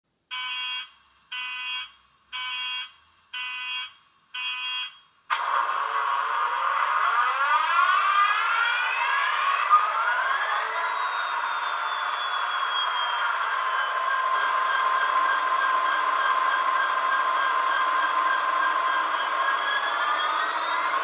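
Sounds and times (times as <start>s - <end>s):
diesel engine starting and revving: 5.3s - 21.0s.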